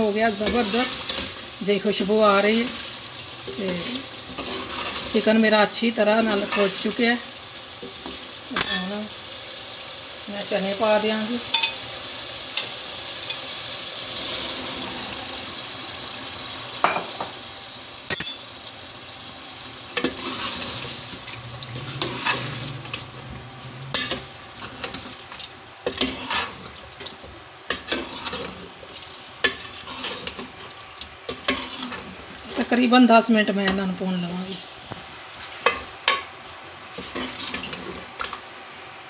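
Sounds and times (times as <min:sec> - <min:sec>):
food sizzling: 0:00.0 - 0:39.0
ladle scraping a pot: 0:03.6 - 0:05.2, 0:20.0 - 0:21.0, 0:21.6 - 0:23.1, 0:23.9 - 0:25.1, 0:25.8 - 0:26.8, 0:27.7 - 0:30.6, 0:31.3 - 0:32.2, 0:37.0 - 0:38.1.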